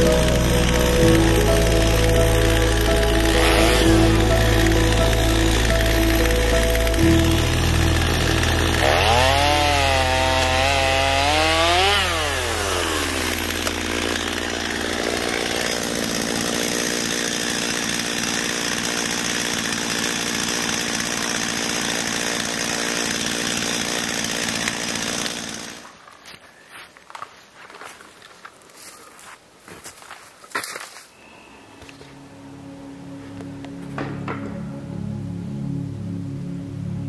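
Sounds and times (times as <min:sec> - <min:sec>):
chainsaw running at high revs: 0:00.0 - 0:26.0.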